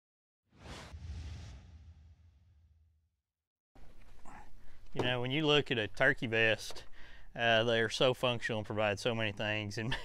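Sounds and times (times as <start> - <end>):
whoosh: 0.5 - 3.0
low boom: 0.7 - 3.0.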